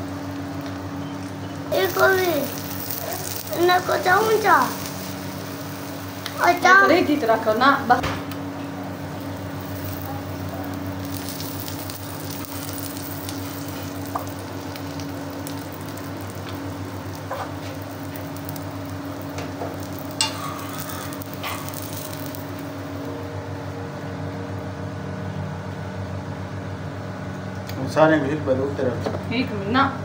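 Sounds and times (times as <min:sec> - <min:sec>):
low hum: 0:00.0 - 0:27.2
omelette sizzling in oil: 0:00.1 - 0:07.9, 0:08.8 - 0:23.2.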